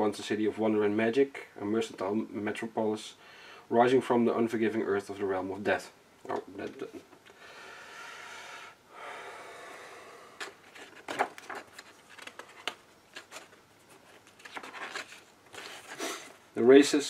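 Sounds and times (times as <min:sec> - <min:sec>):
pages flipping: 0:10.4 - 0:16.4
hand rubbing on paper: 0:13.2 - 0:16.4.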